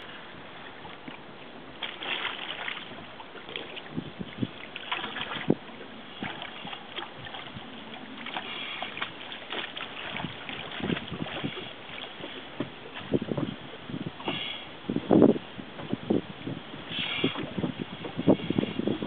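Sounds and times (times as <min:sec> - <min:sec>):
water splashing and lapping: 0:00.0 - 0:19.0
steady wind-like hiss: 0:10.1 - 0:19.0.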